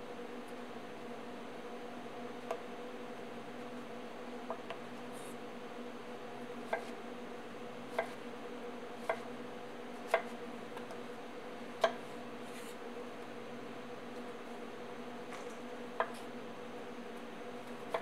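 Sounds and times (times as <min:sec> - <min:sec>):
knife chopping on wooden board: 0:06.7 - 0:07.0, 0:10.1 - 0:10.4.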